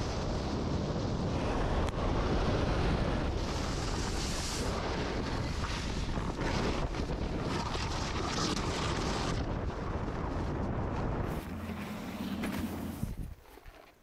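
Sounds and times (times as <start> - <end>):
wind on microphone: 0.0 - 13.8
snowboard sliding on snow: 0.0 - 14.0
board edge carving snow: 11.2 - 14.0.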